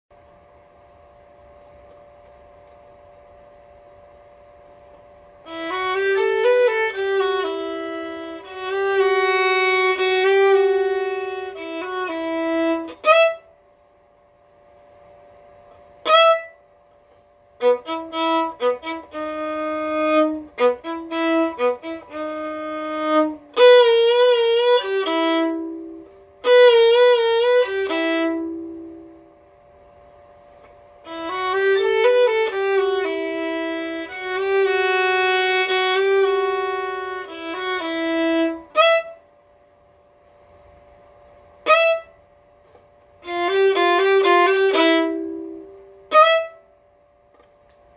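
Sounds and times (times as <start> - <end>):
solo violin playing: 5.4 - 13.5, 16.0 - 16.6, 17.6 - 29.1, 31.0 - 39.2, 41.6 - 42.2, 43.2 - 46.7.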